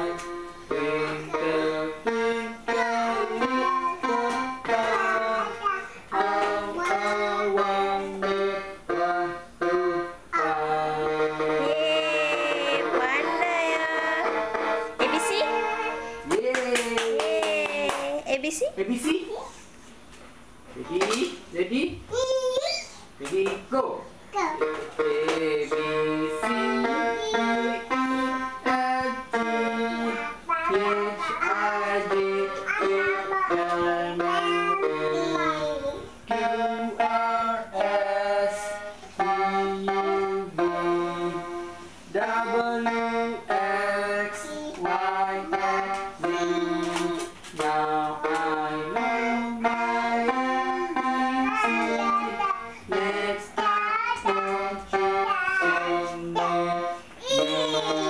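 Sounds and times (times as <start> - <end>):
person singing: 0.0 - 18.2, 24.6 - 58.0
electronic keyboard melody: 6.2 - 16.2, 24.6 - 44.2, 47.8 - 53.4.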